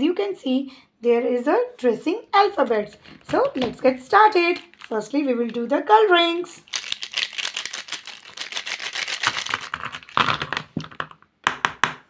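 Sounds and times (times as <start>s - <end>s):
plastic pens clattering onto paper: 2.9s - 5.6s.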